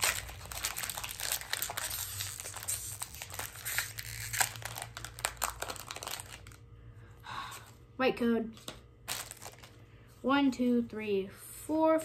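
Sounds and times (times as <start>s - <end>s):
foil wrapper crinkling and tearing: 0.0s - 6.6s, 9.0s - 9.8s.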